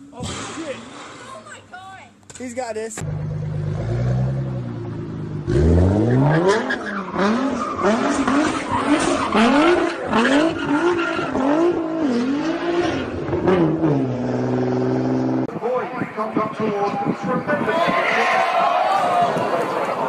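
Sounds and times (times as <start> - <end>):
car engine revving: 3.0 - 15.5.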